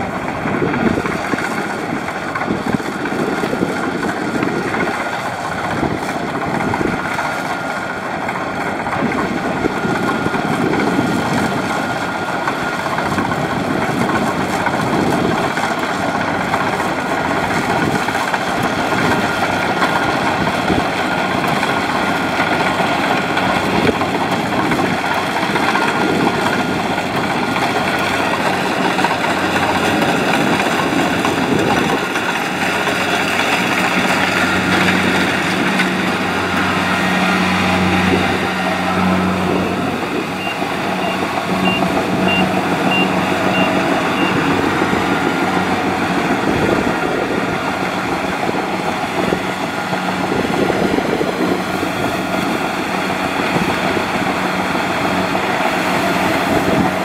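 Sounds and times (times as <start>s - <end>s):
combine harvester running: 0.0s - 57.0s
faint high beeps: 40.4s - 44.5s.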